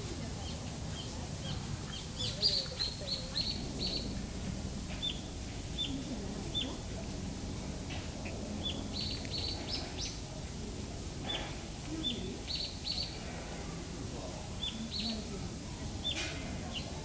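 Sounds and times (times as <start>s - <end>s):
small birds chirping: 0.4s - 4.1s, 5.0s - 6.9s, 8.2s - 10.2s, 11.3s - 13.3s, 14.6s - 15.3s, 16.0s - 17.0s.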